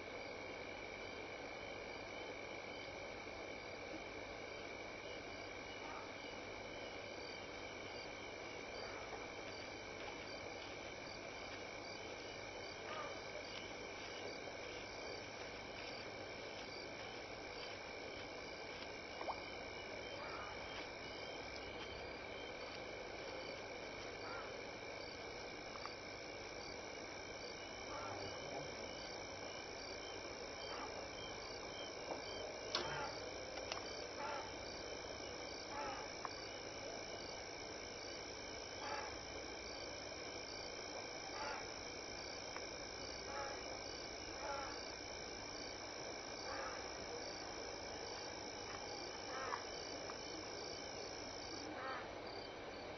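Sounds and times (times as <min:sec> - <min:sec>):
insects trilling: 0:00.0 - 0:52.9
frogs calling: 0:05.1 - 0:52.9.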